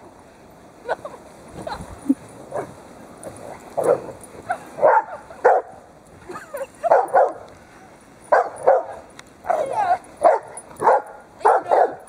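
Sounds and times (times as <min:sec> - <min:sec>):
dogs barking in play: 0:02.5 - 0:05.9, 0:06.8 - 0:07.5, 0:08.3 - 0:12.0.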